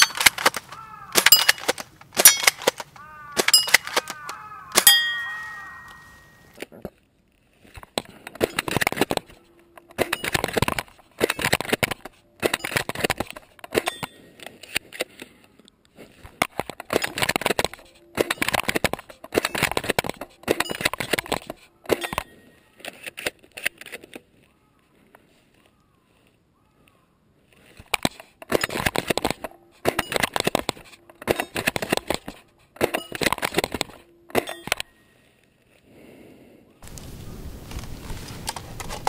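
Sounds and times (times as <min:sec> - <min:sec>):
rustling crunching in dry grass: 0:36.8 - 0:39.0.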